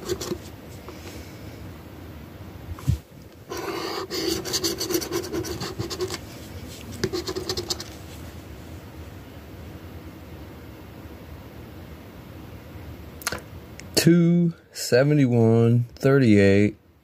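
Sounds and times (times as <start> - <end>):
scratching lottery ticket: 0.0 - 0.5, 3.5 - 8.1.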